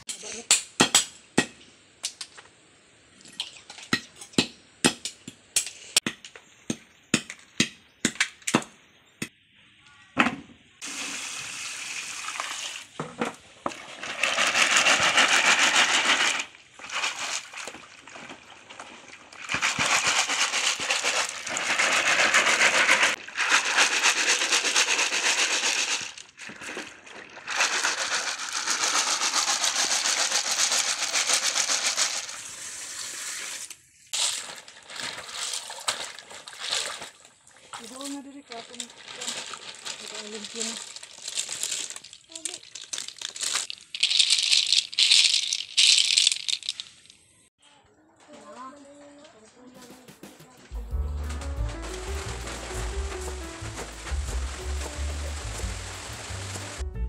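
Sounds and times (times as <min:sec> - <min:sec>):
shells rattling in basket: 0:14.1 - 0:17.6, 0:19.4 - 0:26.6, 0:27.4 - 0:32.4, 0:38.5 - 0:47.3
water sloshing: 0:16.8 - 0:23.7, 0:26.4 - 0:28.1, 0:34.4 - 0:44.2, 0:51.0 - 0:56.8.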